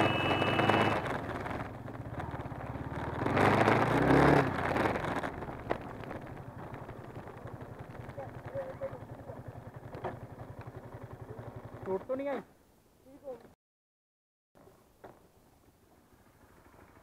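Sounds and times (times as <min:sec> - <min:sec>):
motorcycle engines running: 0:00.0 - 0:12.4, 0:15.8 - 0:17.0.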